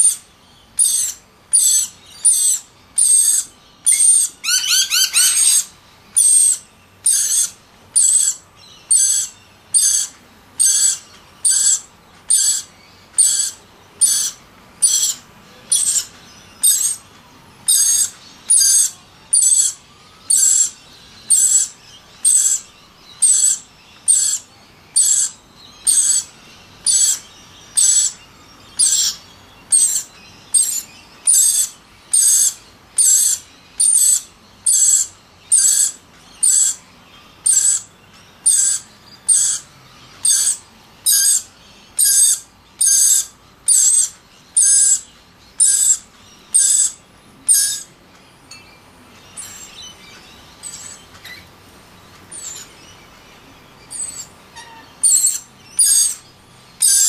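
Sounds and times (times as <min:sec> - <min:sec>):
lorikeets squawking: 0:00.0 - 0:57.0.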